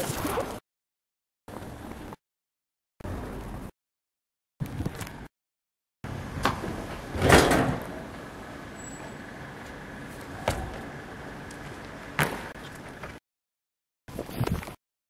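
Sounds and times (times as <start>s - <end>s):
steady hum: 6.0s - 13.2s.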